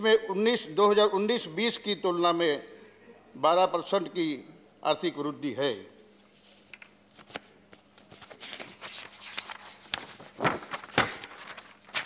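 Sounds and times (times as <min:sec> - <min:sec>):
paper pages rustling: 0:06.2 - 0:12.0
paper flaps: 0:06.4 - 0:12.0.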